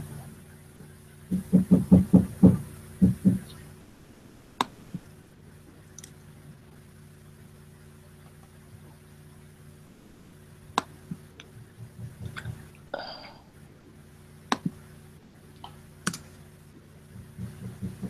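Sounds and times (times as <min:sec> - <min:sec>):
low electrical hum: 0:00.0 - 0:18.0
sharp clicks: 0:06.0 - 0:06.2, 0:15.6 - 0:16.3
faint low mumbling: 0:09.9 - 0:14.0.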